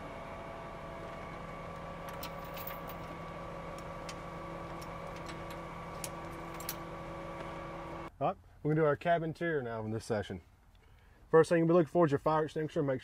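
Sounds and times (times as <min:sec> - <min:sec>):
truck diesel engine idling: 0:00.0 - 0:08.1.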